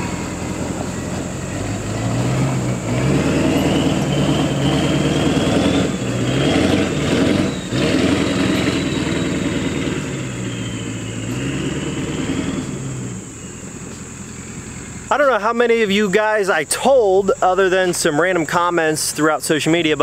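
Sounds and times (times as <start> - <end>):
high turbo whistle: 0.0 - 15.1
diesel truck engine pulling away: 0.0 - 20.0.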